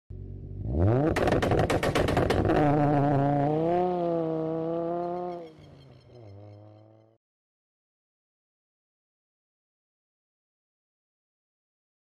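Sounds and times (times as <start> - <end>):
car engine revving: 0.1 - 7.2.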